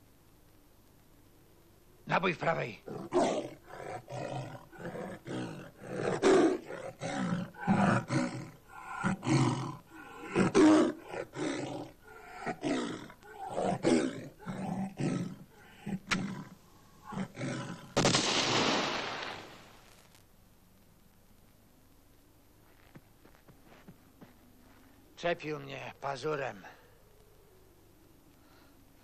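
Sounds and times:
tiger snarling and roaring: 0:02.3 - 0:18.0
shotgun shot: 0:18.0 - 0:19.8.

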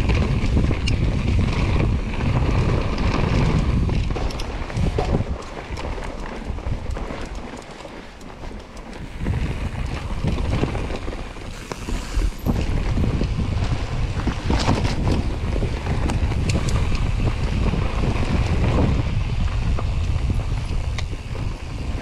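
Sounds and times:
bike rattling on rocky ground: 0:00.0 - 0:22.0
tyre noise: 0:00.0 - 0:22.0
wind buffeting microphone: 0:00.0 - 0:22.0.

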